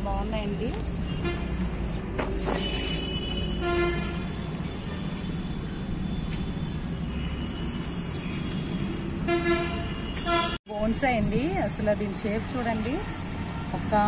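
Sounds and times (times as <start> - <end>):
road traffic rumble: 0.0 - 14.0
vehicle horn toot: 2.5 - 5.1, 9.3 - 10.6.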